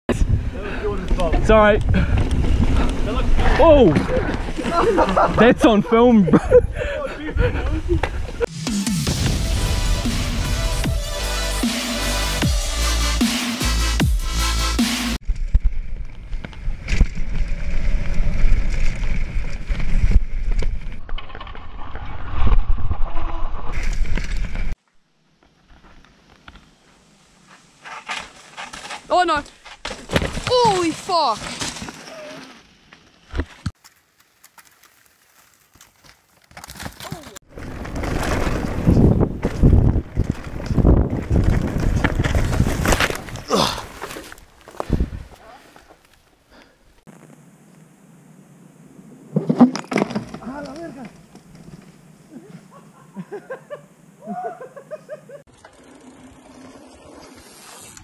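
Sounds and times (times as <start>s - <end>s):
wind noise on microphone: 0.1s - 4.7s, 37.5s - 43.5s, 44.8s - 45.4s
tyres on loose dirt: 0.5s - 8.5s, 15.2s - 58.0s
bike rattling and knocking: 36.5s - 44.8s.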